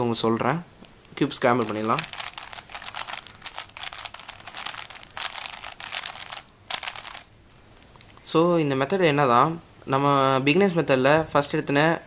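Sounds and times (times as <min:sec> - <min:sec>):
puzzle cube clicking and rattling: 0:01.6 - 0:07.3.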